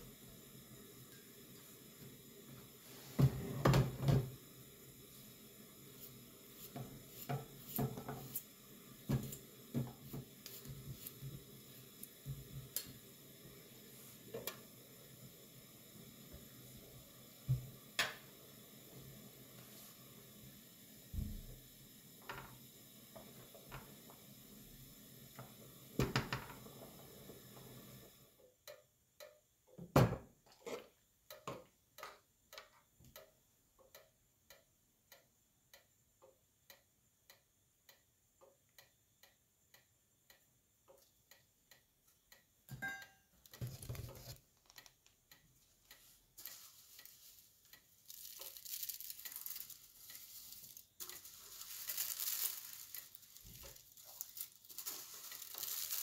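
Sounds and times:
rice boiling in a pot: 0:00.0 - 0:29.6, 0:42.8 - 0:56.0.

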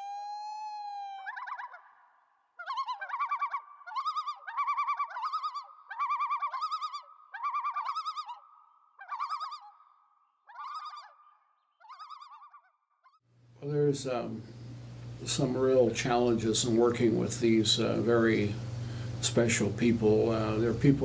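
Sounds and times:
loon tremolo call: 0:00.0 - 0:09.8.

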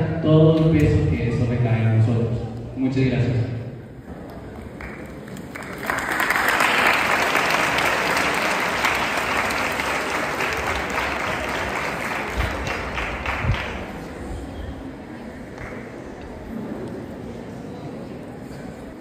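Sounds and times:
audience applauding: 0:04.2 - 0:14.2.

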